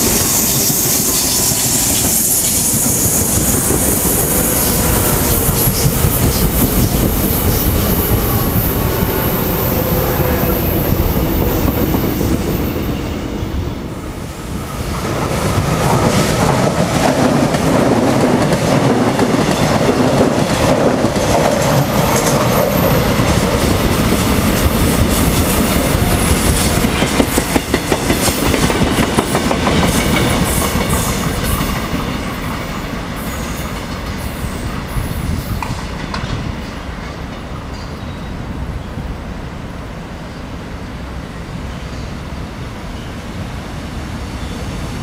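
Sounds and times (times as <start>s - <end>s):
train wheels clicking over joints: 0.0s - 9.8s, 15.0s - 38.0s
distant train rumble: 0.0s - 45.0s
electric train passing: 0.0s - 45.0s.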